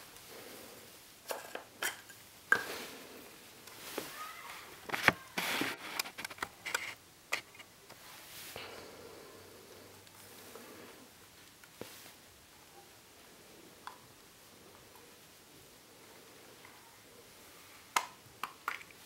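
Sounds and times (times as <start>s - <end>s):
plastic lens rubbing against fingers: 4.9s - 7.7s.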